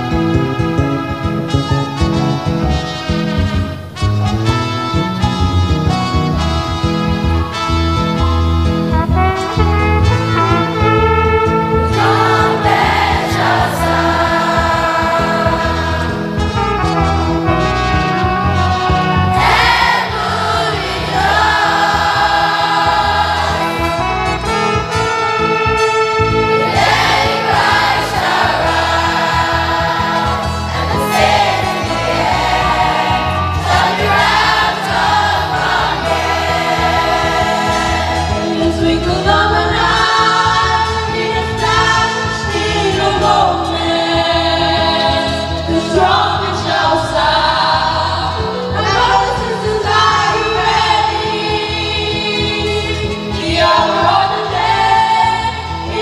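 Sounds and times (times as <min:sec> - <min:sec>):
instrumental backing: 0:00.0 - 0:56.0
children's choir singing: 0:11.9 - 0:16.2, 0:19.4 - 0:24.0, 0:26.6 - 0:56.0.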